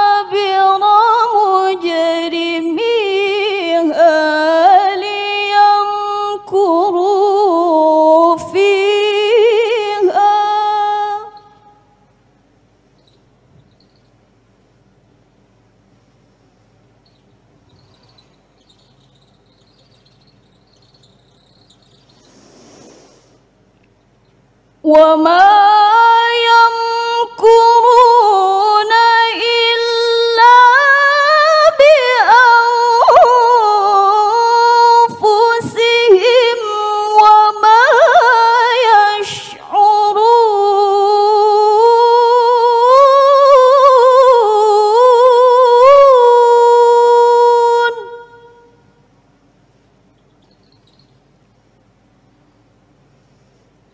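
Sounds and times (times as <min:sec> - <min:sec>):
woman reciting melodically: 0:00.0 - 0:11.9, 0:24.8 - 0:48.9
faint high-pitched chirping: 0:11.1 - 0:11.9, 0:12.8 - 0:14.3, 0:16.9 - 0:23.2, 0:23.8 - 0:24.5, 0:50.0 - 0:52.8.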